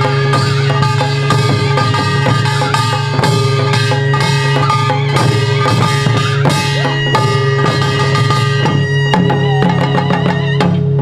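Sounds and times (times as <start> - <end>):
held melodic line: 0.0 - 10.7
barrel drums struck with sticks: 0.0 - 10.9.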